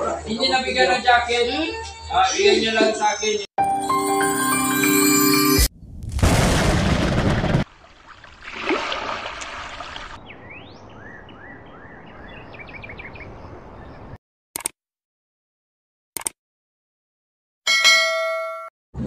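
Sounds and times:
explosion-like burst: 5.7 - 7.7.

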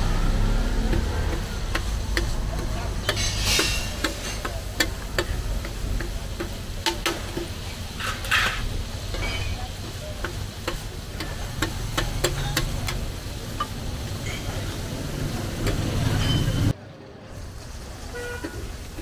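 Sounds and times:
liver sizzling on a griddle: 0.0 - 16.7, 17.3 - 19.0
metal spatula scraping griddle: 0.9 - 5.8, 7.0 - 9.7.

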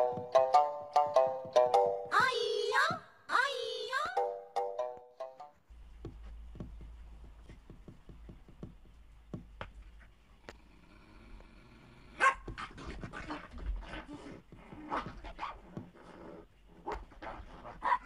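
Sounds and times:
small dog barking: 12.2 - 13.4, 17.8 - 18.0.

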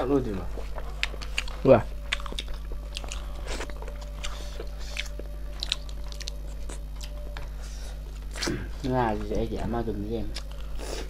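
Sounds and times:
close-up chewing with wet mouth noises: 0.4 - 8.6, 10.3 - 11.0.

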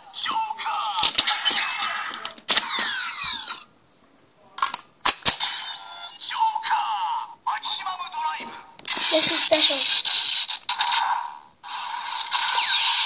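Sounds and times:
electronic toy sound effects: 5.4 - 7.0, 8.9 - 13.0.

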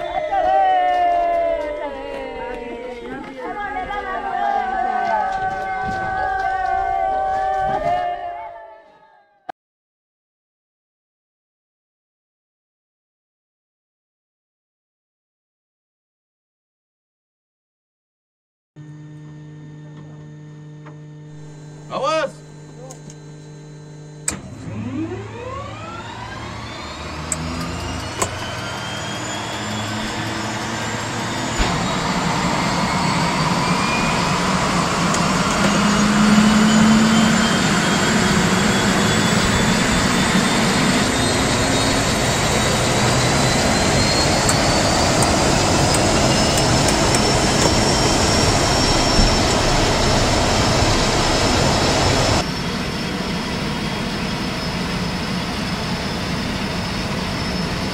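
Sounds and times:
turboprop engine whine: 18.8 - 57.9.

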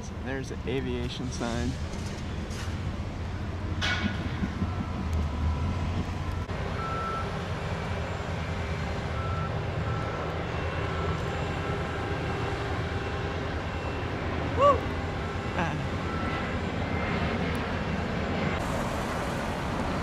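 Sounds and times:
low engine rumble: 0.0 - 20.0
reversing alarm beeps: 4.5 - 7.4, 9.1 - 11.9, 12.9 - 14.2, 15.8 - 16.6.

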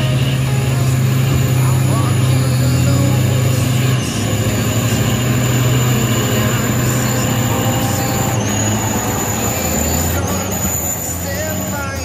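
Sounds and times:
diesel truck engines droning: 0.0 - 12.0.

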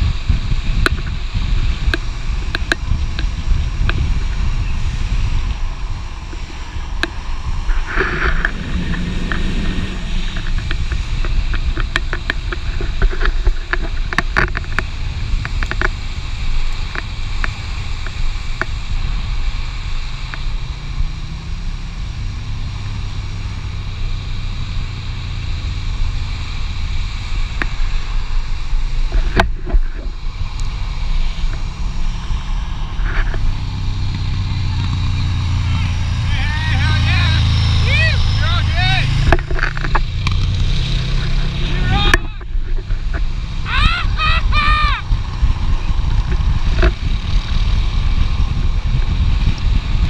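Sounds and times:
longboard wheels rolling on asphalt: 0.0 - 50.0
wind buffeting microphone: 0.0 - 50.0
sharp clicks and ticks: 0.8 - 4.1, 6.3 - 16.0, 36.8 - 41.4.

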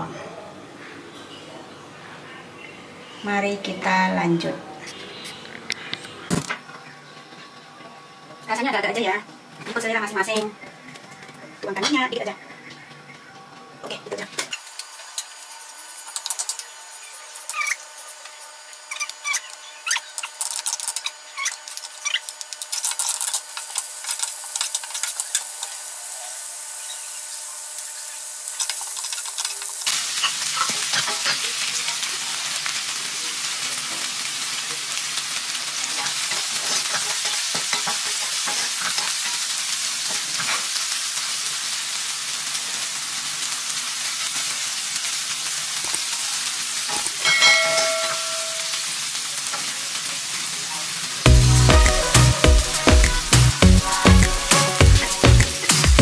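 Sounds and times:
shallots sizzling in a pan: 14.5 - 55.8.

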